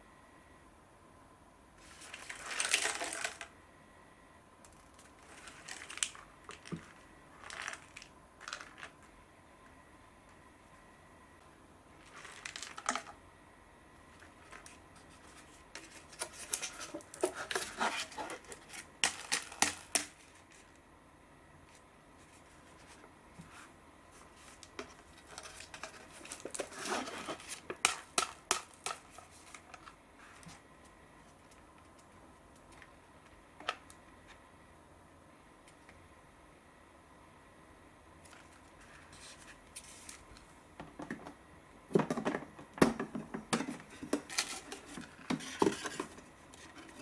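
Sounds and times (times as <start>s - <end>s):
foil lids crinkling: 1.8s - 3.5s, 4.9s - 9.0s, 12.0s - 13.1s, 14.2s - 20.8s, 24.2s - 30.6s, 43.5s - 47.0s.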